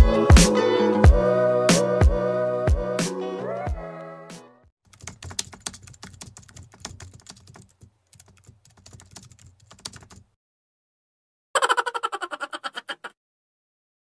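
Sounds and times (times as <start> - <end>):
background music: 0.0 - 4.7
keyboard typing clicks: 4.9 - 10.3.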